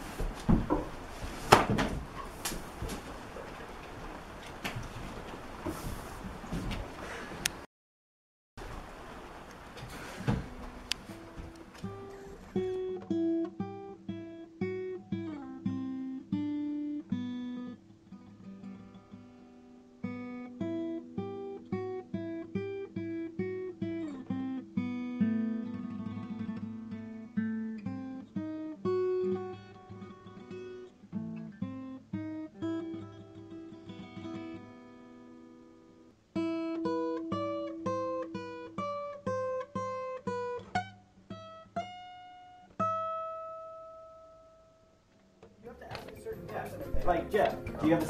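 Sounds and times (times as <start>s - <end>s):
acoustic guitar playing: 9.7s - 48.0s.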